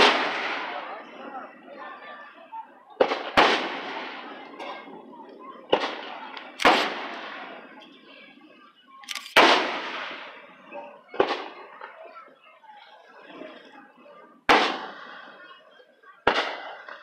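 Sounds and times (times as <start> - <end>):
fireworks booming: 0.0 - 1.2, 3.0 - 8.0, 9.3 - 12.1, 14.5 - 15.6, 16.2 - 17.0.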